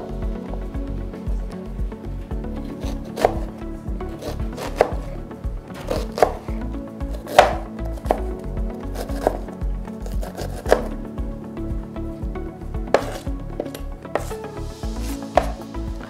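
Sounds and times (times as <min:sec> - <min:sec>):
knife chopping on cutting board: 0:02.8 - 0:03.4, 0:04.2 - 0:05.1, 0:05.8 - 0:06.4, 0:07.2 - 0:08.2, 0:10.2 - 0:10.9, 0:12.9 - 0:14.4, 0:15.0 - 0:15.6.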